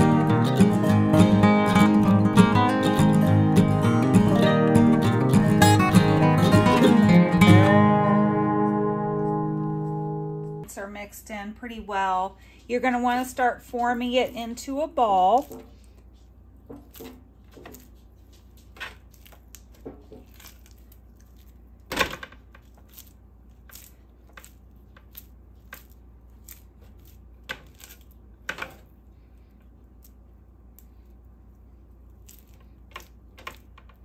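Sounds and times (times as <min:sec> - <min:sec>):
hands squelching sticky mixture: 0:13.1 - 0:34.0.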